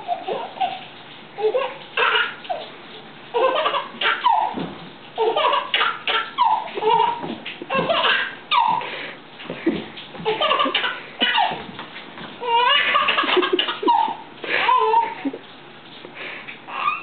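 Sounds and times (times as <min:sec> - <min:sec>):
baby laughing: 0:00.0 - 0:02.7, 0:03.3 - 0:04.6, 0:05.2 - 0:08.9, 0:10.2 - 0:11.6, 0:12.4 - 0:15.4, 0:16.7 - 0:17.0.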